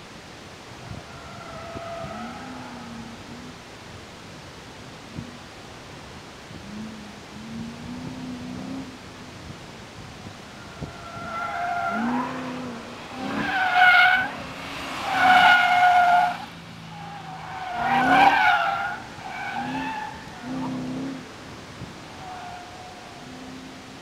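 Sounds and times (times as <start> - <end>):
car engine revving: 6.5 - 24.0.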